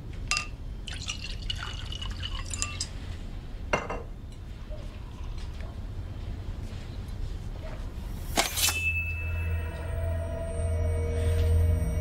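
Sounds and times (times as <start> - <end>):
glass clinking on hard surface: 0.3 - 2.9
wine pouring into glass: 0.9 - 2.9.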